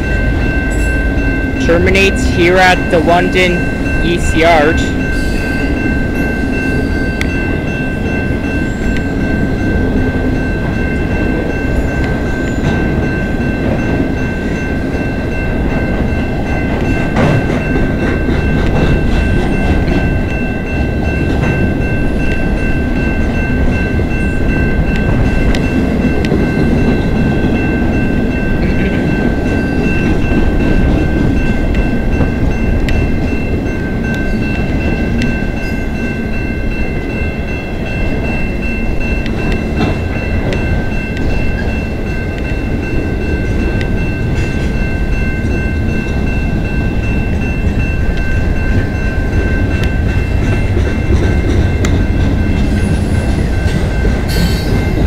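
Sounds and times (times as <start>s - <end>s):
high-pitched ringing: 0.0s - 55.0s
train wheels clattering on rail: 4.7s - 55.0s.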